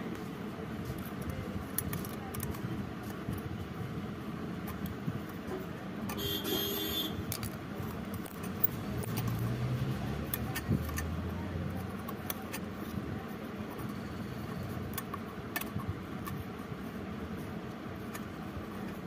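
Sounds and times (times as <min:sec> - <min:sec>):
screwdriver clicking and scraping metal: 0:07.2 - 0:09.5, 0:10.2 - 0:13.0.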